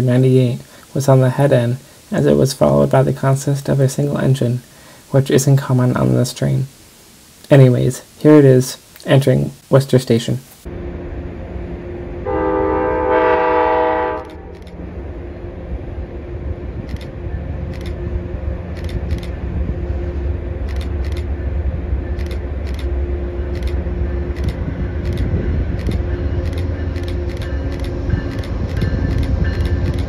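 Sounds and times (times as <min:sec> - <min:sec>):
low train rumble: 0:10.6 - 0:30.0
locomotive horn blast: 0:12.2 - 0:14.6.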